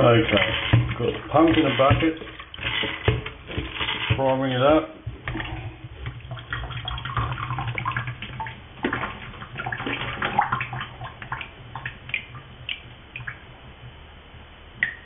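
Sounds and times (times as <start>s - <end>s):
low steady hum: 0.0s - 15.0s
water splashing and gurgling: 5.1s - 13.6s.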